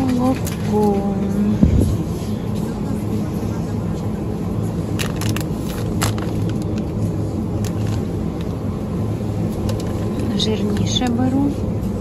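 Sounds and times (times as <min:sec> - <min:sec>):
refrigerator electrical hum: 0:00.0 - 0:12.0.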